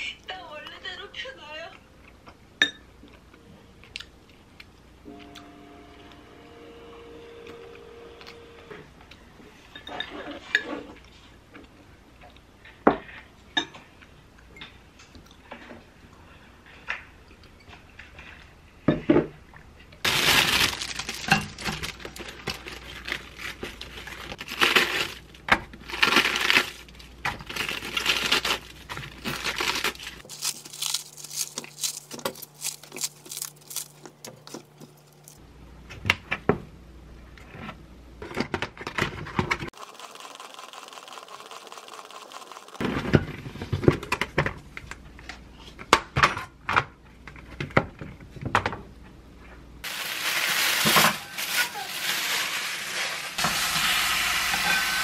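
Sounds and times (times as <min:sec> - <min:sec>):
lettuce tearing and crackling: 0:20.1 - 0:35.4, 0:39.8 - 0:42.8, 0:49.9 - 0:53.5.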